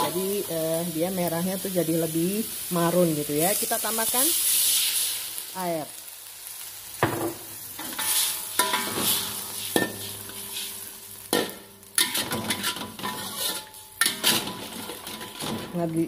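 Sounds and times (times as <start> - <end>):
sauce sizzling: 0.0 - 16.0
wok clanking and ringing: 7.8 - 10.7, 11.3 - 15.8
metal spatula scraping wok: 7.8 - 15.9.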